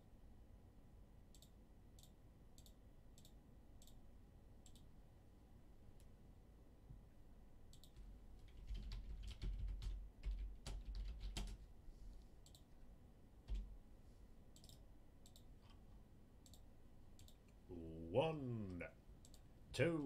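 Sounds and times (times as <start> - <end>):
keyboard typing: 7.7 - 11.6, 12.4 - 12.7, 13.5 - 13.7, 14.6 - 15.8.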